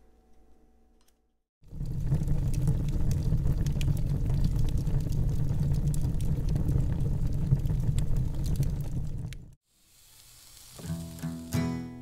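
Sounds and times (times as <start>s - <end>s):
fire crackling and roaring: 1.6s - 11.6s.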